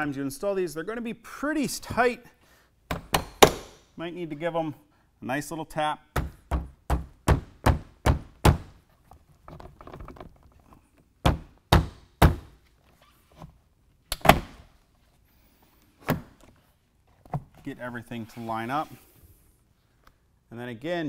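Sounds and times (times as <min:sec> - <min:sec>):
window frame tapped into door thunks: 0:06.2 - 0:08.7.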